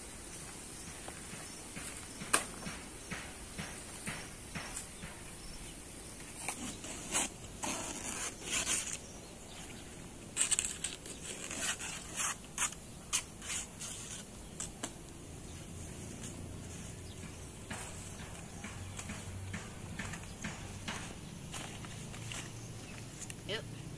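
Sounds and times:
banana leaves rustling: 0:05.6 - 0:23.5.

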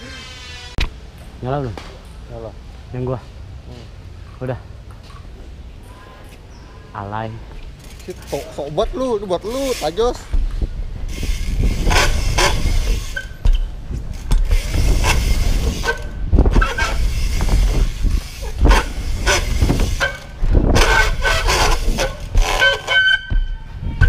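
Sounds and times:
bike knocking and rattling: 0:07.5 - 0:24.0
bike tyres rolling on ramp: 0:07.7 - 0:24.0
wind buffeting microphone: 0:10.0 - 0:22.6, 0:23.2 - 0:24.0.

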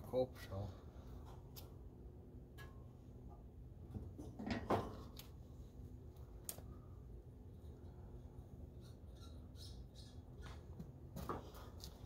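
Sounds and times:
clunk and scrape: 0:03.9 - 0:05.2, 0:10.4 - 0:12.0.

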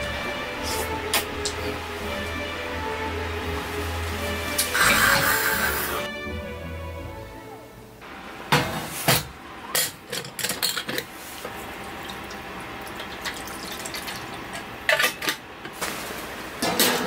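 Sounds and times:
water pouring into kettle: 0:11.5 - 0:14.6.

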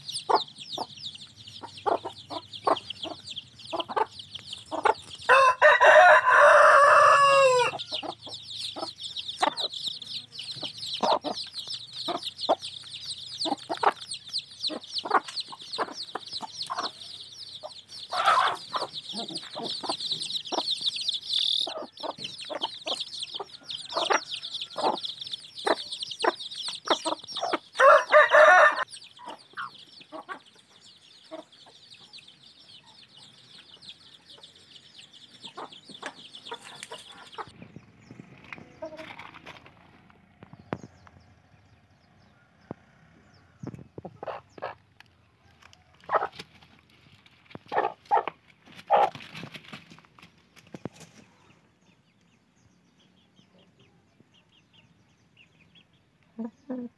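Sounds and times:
hen clucking: 0:00.0 - 0:46.9, 0:47.5 - 0:49.3
chicks peeping: 0:00.0 - 0:56.9
rooster crowing: 0:05.3 - 0:08.0, 0:23.4 - 0:25.2, 0:27.8 - 0:28.9.

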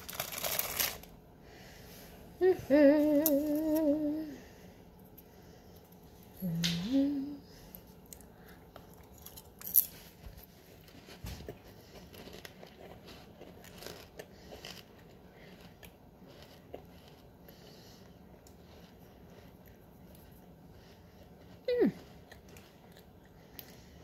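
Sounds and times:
chewing with small crunches: 0:07.6 - 0:24.0
cookie bite crunch: 0:10.8 - 0:24.0.

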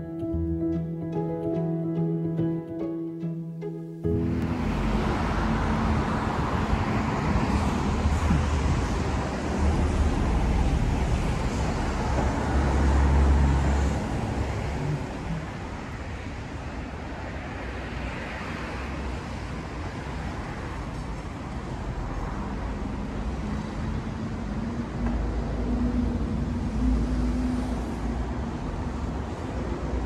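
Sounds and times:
street traffic noise: 0:03.9 - 0:30.0
vehicle engine passing close: 0:04.1 - 0:16.4.

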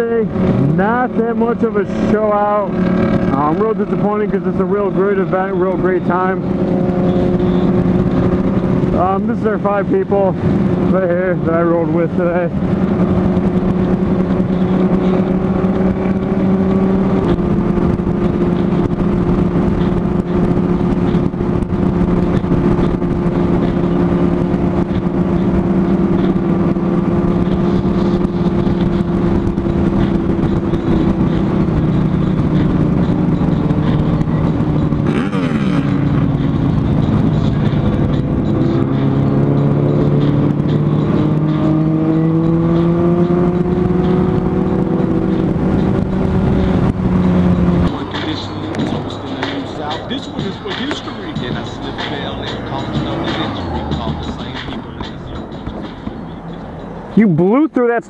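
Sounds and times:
motorcycle engine cruising: 0:00.0 - 0:58.0
wind noise on microphone: 0:12.4 - 0:49.0.

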